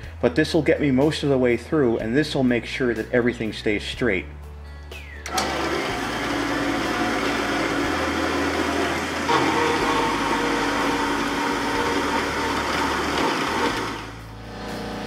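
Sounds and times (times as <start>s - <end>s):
bandsaw cutting metal: 5.3s - 14.2s.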